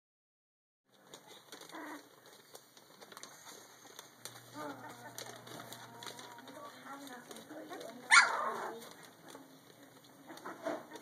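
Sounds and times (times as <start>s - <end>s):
paws scuffling on floor: 0.9s - 11.0s
puppies yipping and growling: 1.1s - 4.5s, 8.0s - 11.0s.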